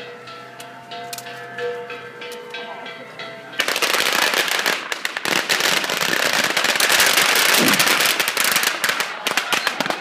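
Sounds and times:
firecrackers crackling: 3.6 - 10.0.

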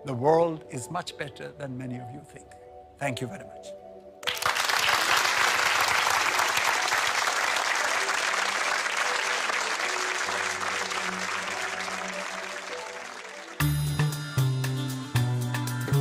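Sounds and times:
large audience applauding: 4.2 - 13.8.

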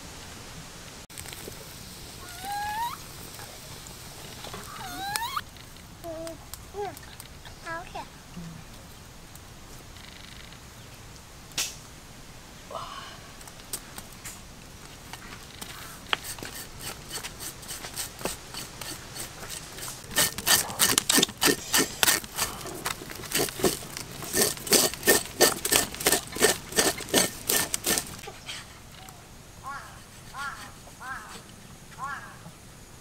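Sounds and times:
knife scraping snake skin: 16.0 - 28.7.

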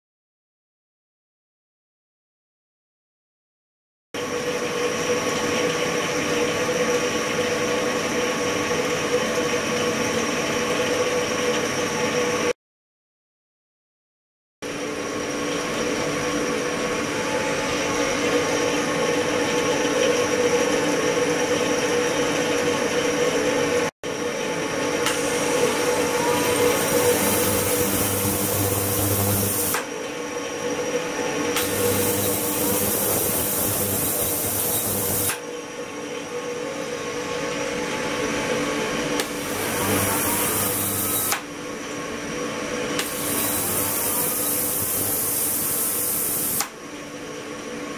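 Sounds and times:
ultrasonic tank humming: 24.1 - 45.0.

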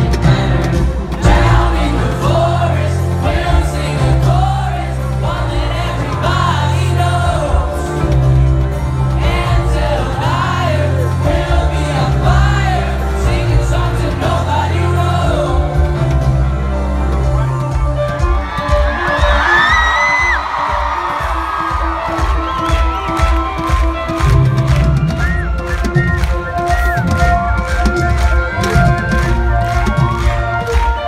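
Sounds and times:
drum kit: 0.0 - 31.0
live band playing: 0.0 - 31.0.

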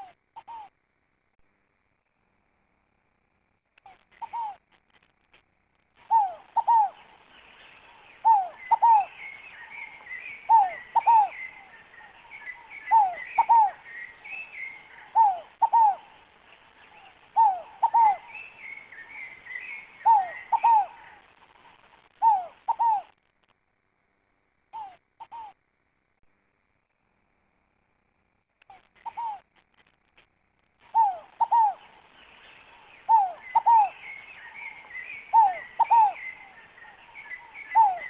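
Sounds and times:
dove cooing: 0.0 - 0.7, 3.9 - 4.6, 6.0 - 7.2, 7.8 - 23.2, 24.7 - 25.6, 28.7 - 29.5, 30.8 - 38.0
small birds chirping: 3.8 - 5.2, 5.8 - 23.2, 24.7 - 25.6, 28.6 - 38.0.

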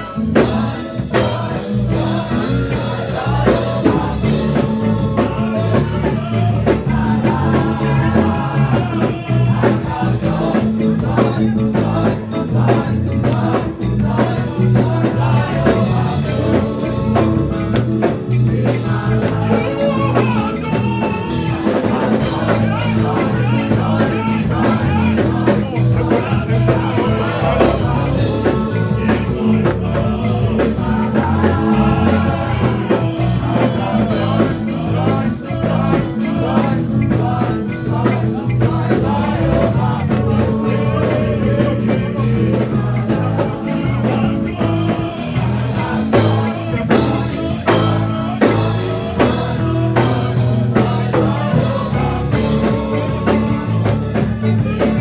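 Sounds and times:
congregation singing: 0.0 - 55.0
instrumental accompaniment: 0.0 - 55.0
jingling percussion: 0.0 - 55.0.

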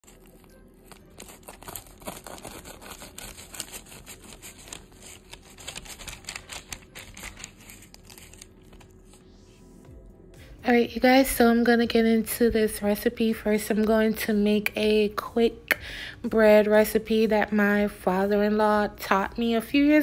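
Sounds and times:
pizza cutter crunching toasted crust: 1.0 - 9.0.

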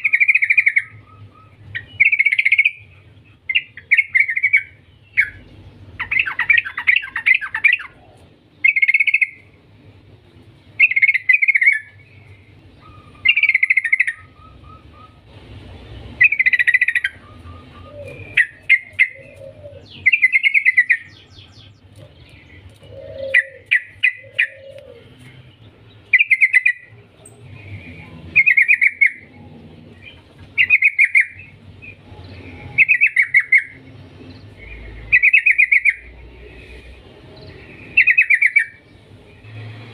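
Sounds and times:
bird singing bubbly phrases: 10.8 - 15.2, 16.2 - 36.7, 37.3 - 39.5.

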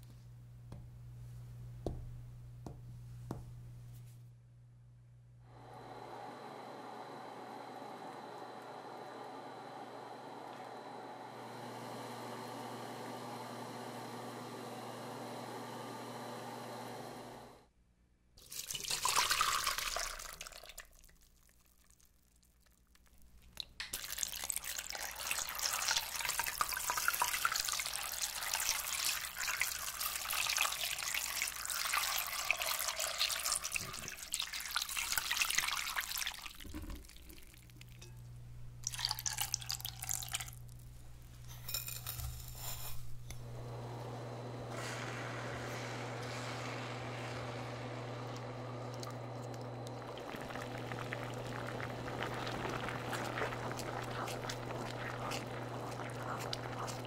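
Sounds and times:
water pouring through a sieve: 18.4 - 22.0, 23.9 - 37.9, 38.8 - 40.6, 44.7 - 57.0
syrup bubbling as it boils: 18.4 - 38.1, 38.8 - 40.8, 43.6 - 57.0.

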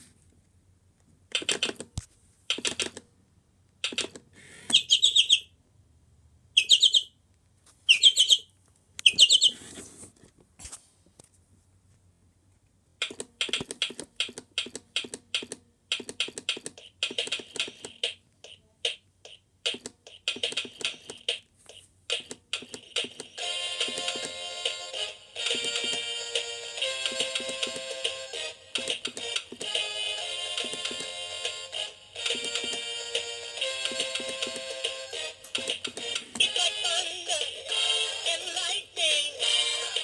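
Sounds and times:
recorded songbird chirps from speaker: 4.7 - 5.5, 6.6 - 7.1, 7.9 - 9.6.

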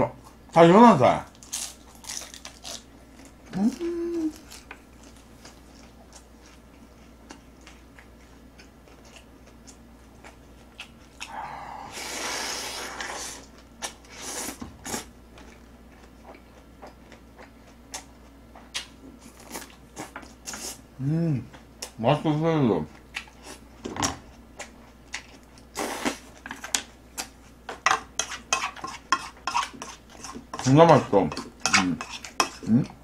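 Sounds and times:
wet chewing and crunching: 1.3 - 11.3
noodle slurping: 11.9 - 13.5.

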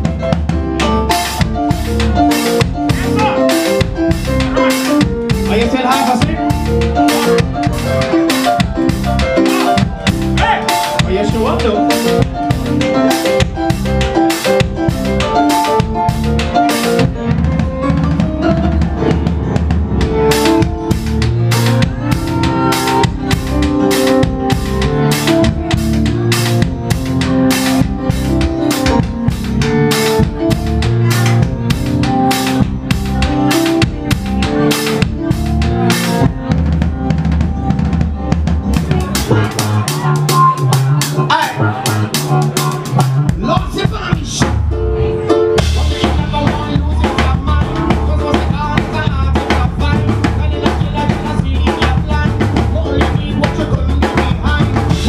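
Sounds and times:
drum kit beat: 0.0 - 55.0
electric bass: 0.0 - 55.0
keyboards: 0.0 - 55.0.

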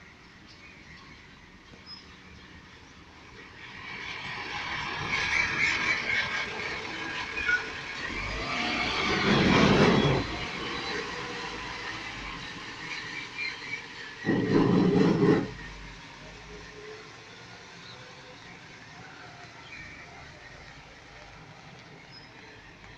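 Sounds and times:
tyres swishing on wet road: 0.0 - 22.9
garbage truck engine: 5.0 - 18.8.

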